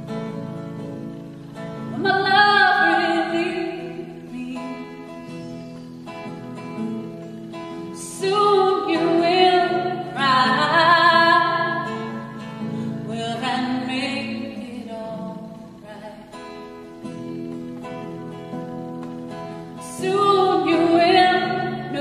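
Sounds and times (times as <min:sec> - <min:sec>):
acoustic guitar chords: 0:00.0 - 0:22.0
woman singing: 0:01.9 - 0:05.4, 0:08.0 - 0:17.7, 0:19.8 - 0:22.0.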